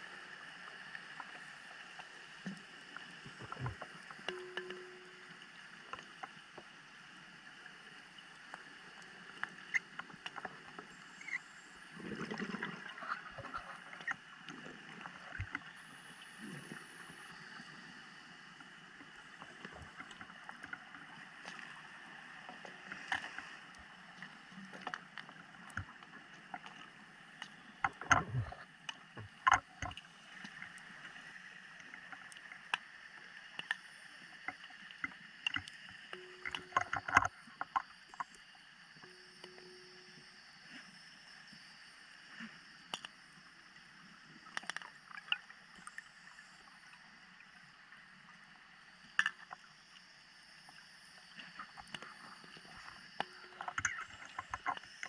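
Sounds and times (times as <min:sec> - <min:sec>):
sharp clicks and crackles: 0:33.5 - 0:38.4, 0:44.4 - 0:46.0.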